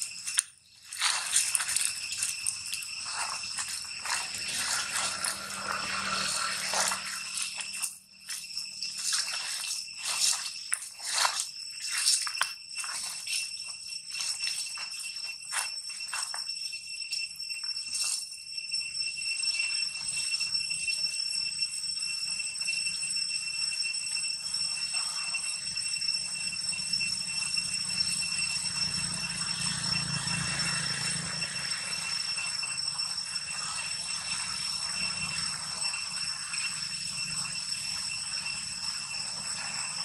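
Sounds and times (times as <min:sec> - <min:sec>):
insects droning: 0:00.0 - 0:40.0.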